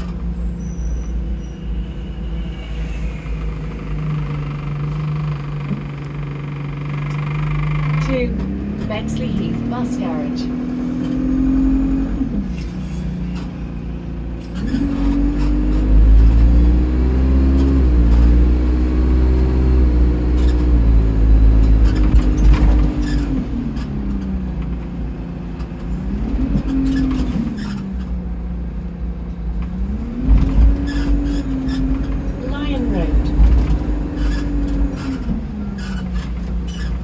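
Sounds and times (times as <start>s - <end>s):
diesel bus engine pulling away: 0.0s - 37.0s
faint high turbo whistle: 0.4s - 3.7s.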